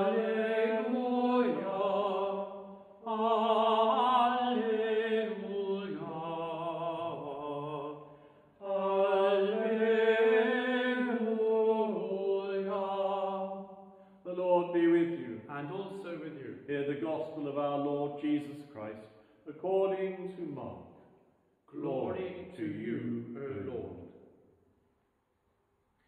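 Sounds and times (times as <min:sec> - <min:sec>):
liturgical chant with vibrato: 0:00.0 - 0:21.0, 0:21.7 - 0:24.2.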